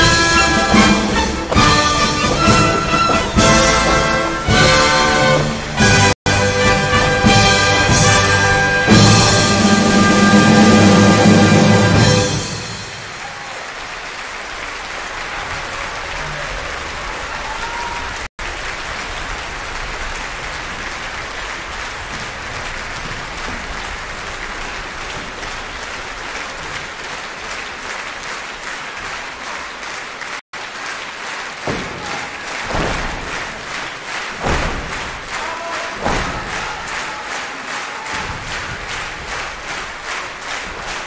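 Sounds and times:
audience applauding: 0.0 - 41.0
rhythmic clapping: 0.0 - 41.0
heavy thumps: 31.7 - 36.9.

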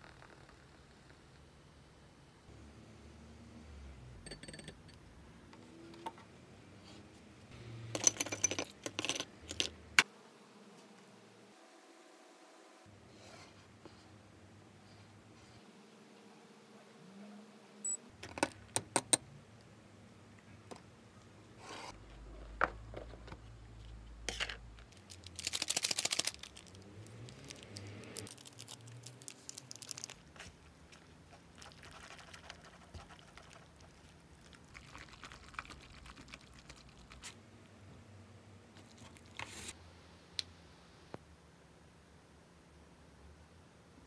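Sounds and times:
packet crinkling: 24.8 - 37.2
seasoning sachet rattling: 24.9 - 30.3, 31.5 - 37.2.

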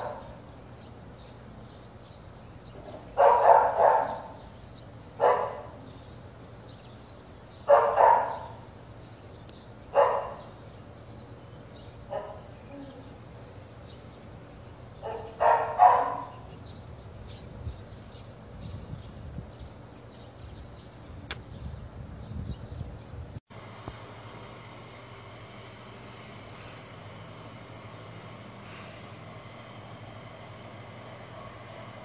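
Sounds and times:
dog barking: 0.0 - 0.4, 3.2 - 4.4, 5.2 - 5.8, 7.7 - 8.6, 9.9 - 10.5, 12.1 - 12.5, 15.0 - 16.5.

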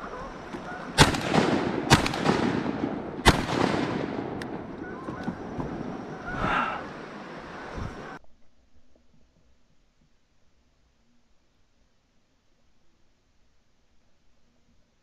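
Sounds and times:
shotgun shots with echo: 0.8 - 5.6.

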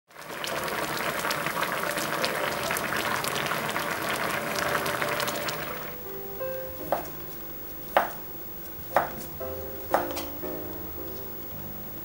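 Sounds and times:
stew boiling and bubbling: 0.1 - 12.0.

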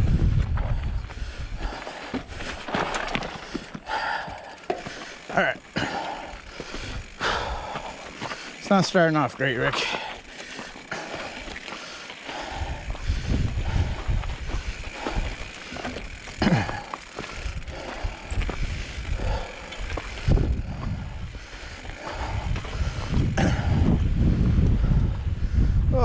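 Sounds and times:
bike rattling: 0.0 - 25.6
tyres crunching on stones: 1.8 - 21.0.

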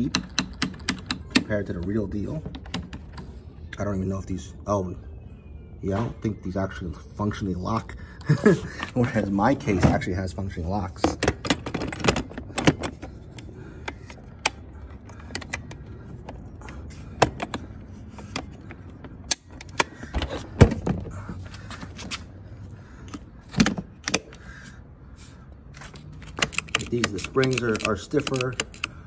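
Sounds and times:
plastic and metal clicks: 26.2 - 29.0.

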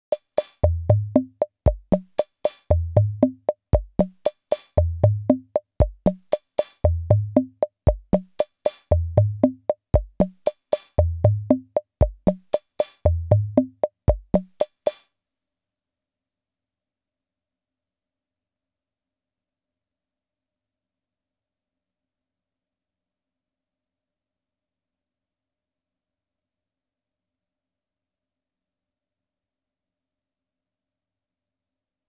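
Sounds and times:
kick drum thumps: 0.6 - 2.0, 3.0 - 4.1, 5.0 - 6.2, 7.0 - 8.2, 8.9 - 10.3, 11.2 - 12.4, 13.3 - 14.4.

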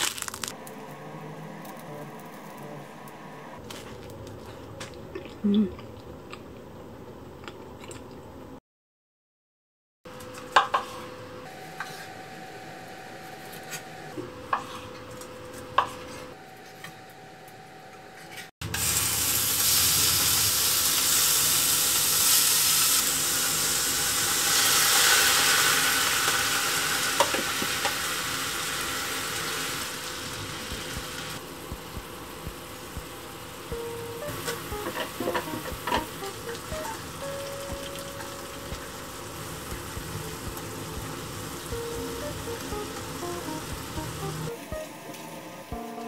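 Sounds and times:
meat sizzling in a frying pan: 18.7 - 33.7.

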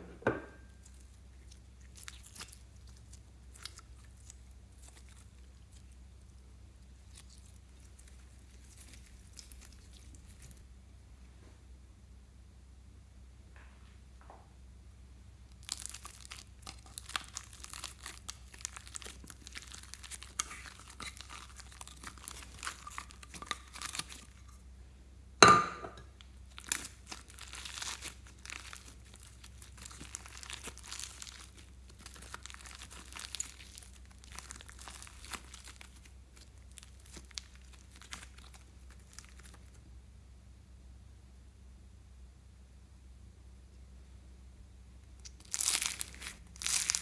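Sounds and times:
foam-bead slime crackling: 0.8 - 10.6, 15.5 - 24.6, 26.4 - 39.8, 45.2 - 47.0.

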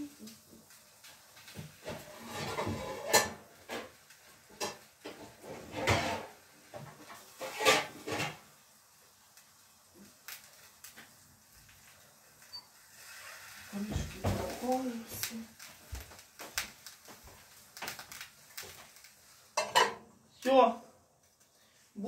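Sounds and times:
pots and lids clattering: 1.8 - 8.5, 19.6 - 20.1.

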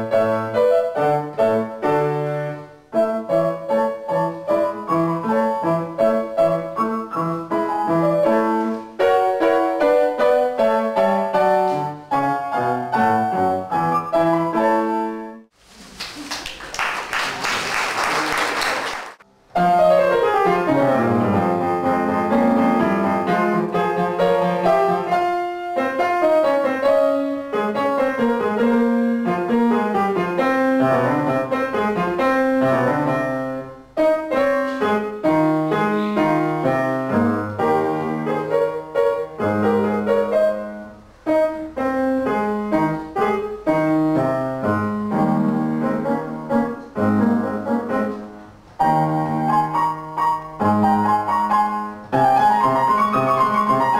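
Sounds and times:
grand piano solo: 0.0 - 15.5, 16.2 - 53.9
applause: 15.8 - 19.2.

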